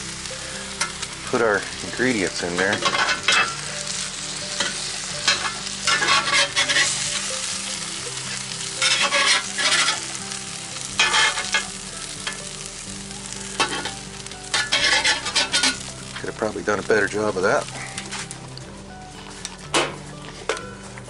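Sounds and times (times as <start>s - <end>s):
egg and sausage sizzling: 0.0s - 21.0s
metal spatula scraping iron: 2.4s - 3.7s, 4.6s - 7.3s, 8.8s - 10.0s, 11.0s - 12.4s, 13.6s - 15.9s.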